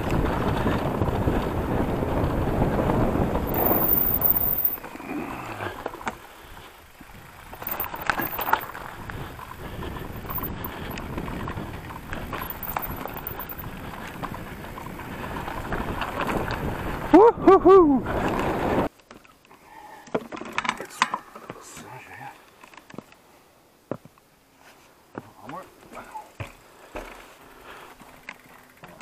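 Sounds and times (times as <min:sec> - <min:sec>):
bike rattling and knocking: 0:00.0 - 0:04.9, 0:05.8 - 0:16.7
bike tyre rumble on rough ground: 0:00.0 - 0:17.3, 0:18.0 - 0:18.9
bike clicks: 0:03.3 - 0:05.0, 0:05.7 - 0:17.1.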